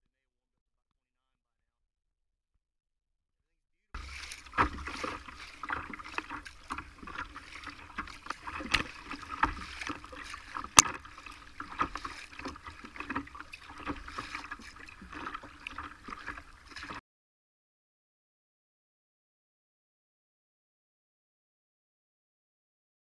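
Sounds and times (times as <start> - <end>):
water splashing against kayak hull: 4.0 - 17.0.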